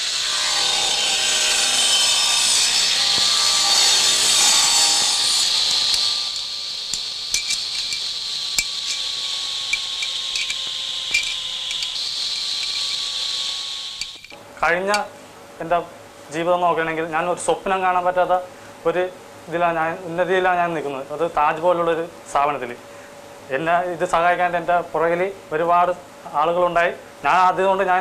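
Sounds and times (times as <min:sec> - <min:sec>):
metal lathe cutting metal: 0:00.0 - 0:14.3
spanner clinking on metal: 0:05.9 - 0:09.1, 0:09.7 - 0:13.0, 0:14.0 - 0:15.1.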